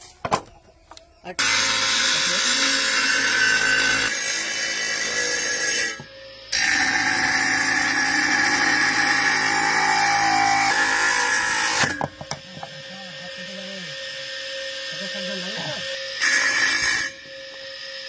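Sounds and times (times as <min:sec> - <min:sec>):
horn grinding on abrasive disc: 0:05.0 - 0:18.0.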